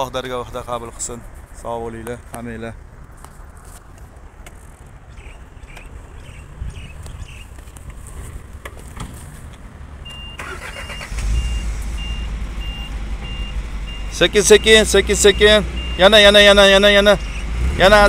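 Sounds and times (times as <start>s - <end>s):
reversing beeper beeps: 10.1s - 17.5s.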